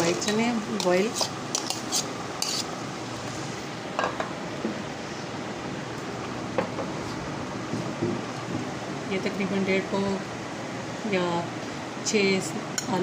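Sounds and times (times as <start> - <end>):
spoon scraping and knocking bowl: 0.2 - 2.7.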